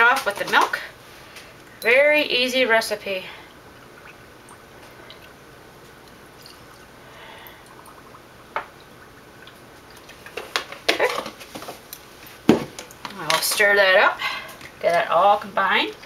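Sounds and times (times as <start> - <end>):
carton knocking: 12.5 - 12.8.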